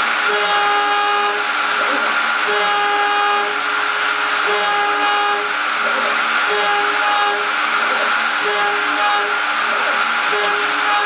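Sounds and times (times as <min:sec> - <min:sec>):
router spindle cutting metal: 0:00.0 - 0:11.0.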